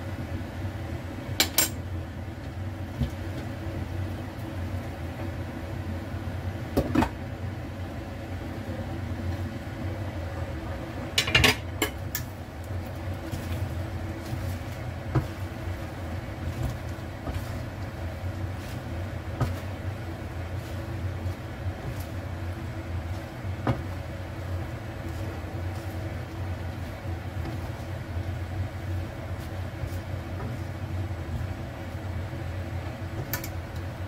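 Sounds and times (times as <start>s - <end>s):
steady low hum: 0.0s - 34.0s
plastic spatula stirring in pan: 12.3s - 34.0s.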